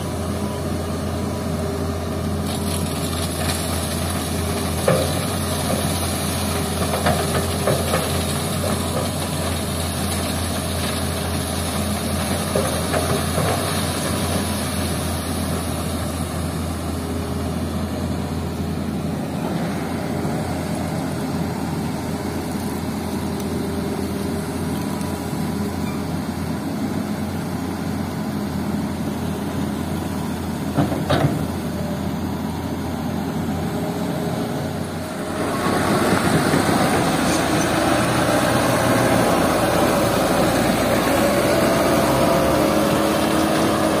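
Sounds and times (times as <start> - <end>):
excavator diesel engine running: 0.0 - 44.0
truck engine driving off: 27.4 - 44.0.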